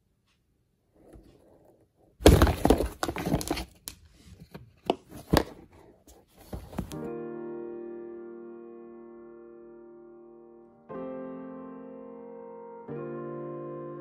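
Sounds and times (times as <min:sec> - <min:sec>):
cat scrabbling in cardboard box: 0:02.2 - 0:03.8
piano music: 0:06.9 - 0:14.0.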